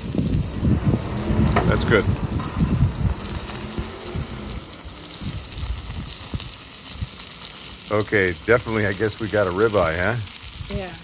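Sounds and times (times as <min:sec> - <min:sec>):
low thumps and rumbling: 0:00.0 - 0:07.9
fat sizzling and crackling: 0:00.0 - 0:11.0.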